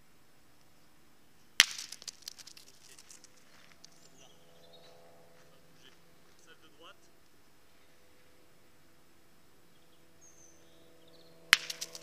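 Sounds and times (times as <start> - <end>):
boules and gravel clicking: 1.6 - 4.4, 11.5 - 12.0
steel boule striking boule: 11.5 - 12.0.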